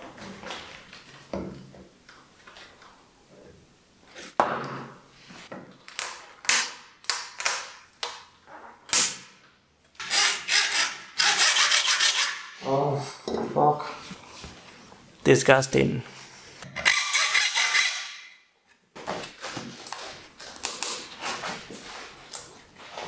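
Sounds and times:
hand tool scraping strokes: 10.0 - 12.6, 16.2 - 18.2.

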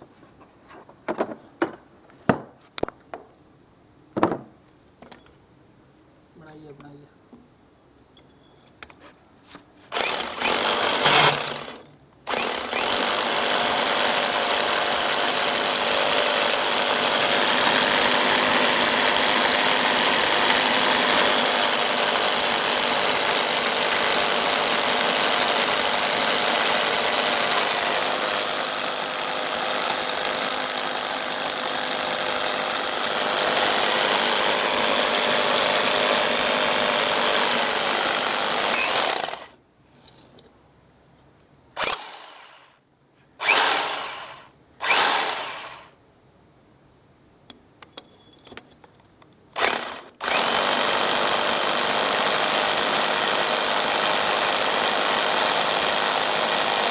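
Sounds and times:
hammer drill boring into wall: 9.9 - 39.6, 41.8 - 42.8, 43.4 - 46.0, 49.6 - 56.9.

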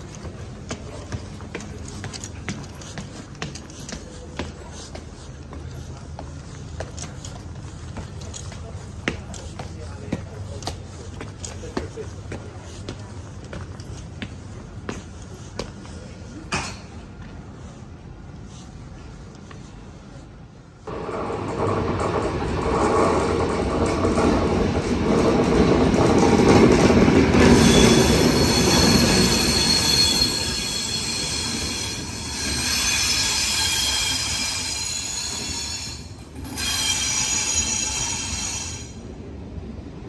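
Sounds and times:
train rumbling past: 17.0 - 40.0
train wheels and brakes squealing: 26.0 - 39.1.

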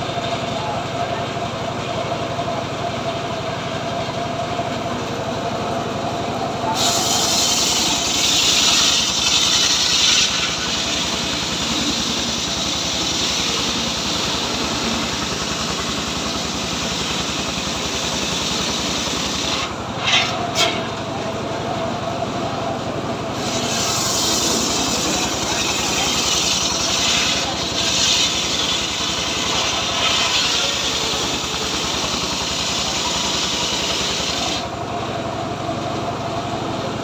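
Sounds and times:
sawmill engine and blade whine: 0.0 - 37.0
saw blade rasping through wood: 6.8 - 15.4, 19.2 - 20.9, 23.4 - 34.7.

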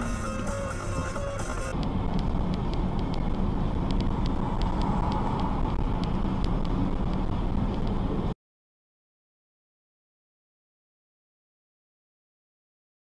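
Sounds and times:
car cabin road and engine noise: 0.0 - 8.4.

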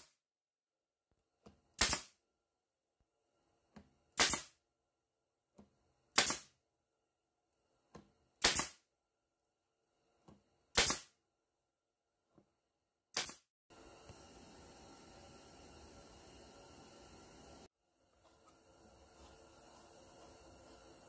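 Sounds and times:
nail gun shots: 1.8 - 2.2, 4.2 - 4.6, 6.2 - 6.5, 8.4 - 8.8, 10.8 - 11.2, 13.1 - 13.4.

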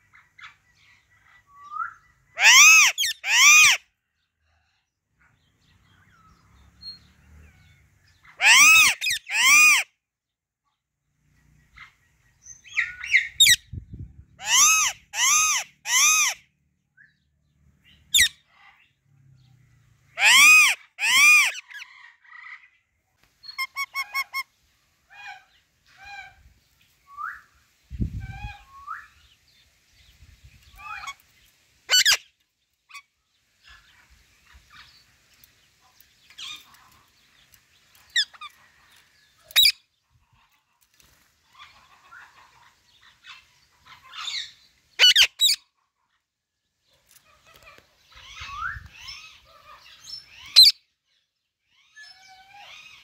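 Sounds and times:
parakeet squawking and chirping: 2.4 - 3.8, 8.3 - 9.8, 14.4 - 16.4, 18.1 - 18.7, 20.2 - 21.8, 23.5 - 24.5, 31.9 - 32.3, 39.5 - 39.8, 41.5 - 45.6, 47.5 - 50.8.

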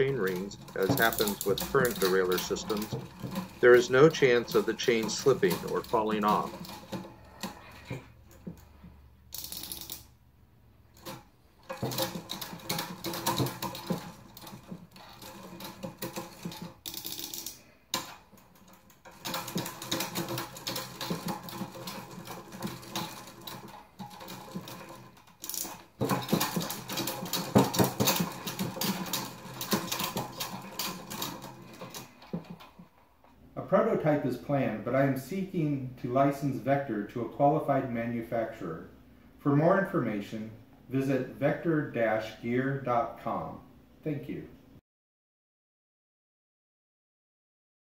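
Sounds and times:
bicycle chain clicking and rattling: 0.0 - 10.2, 10.8 - 33.3.

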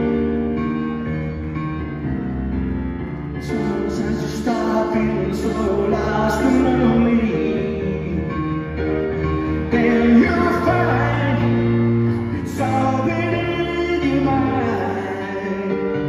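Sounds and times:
electric keyboard playing: 0.0 - 16.0
man singing: 3.4 - 16.0.

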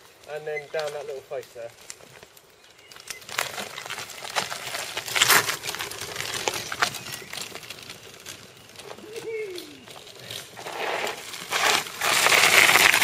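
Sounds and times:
gravel crunching under tyres: 0.0 - 13.0.

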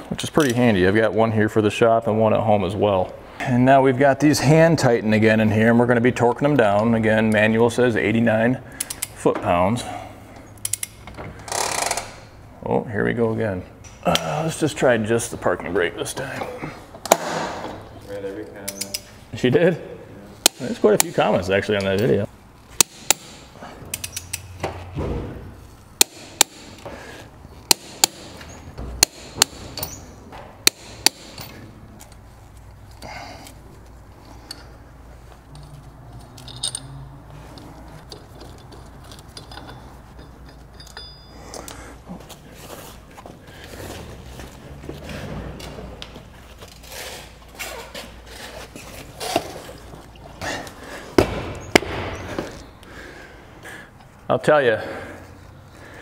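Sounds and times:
torque wrench clicking: 22.8 - 24.5
sharp knocks: 51.2 - 52.4.

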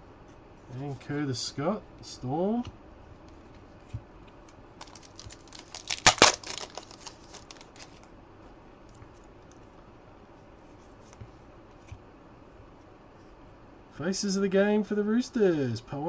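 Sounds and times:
cards clicking: 4.4 - 8.0
foil wrapper crinkling and tearing: 4.8 - 8.1.

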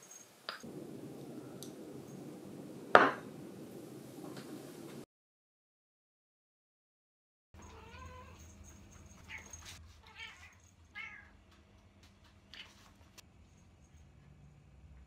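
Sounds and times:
cat meowing: 7.6 - 8.5, 9.2 - 11.3.

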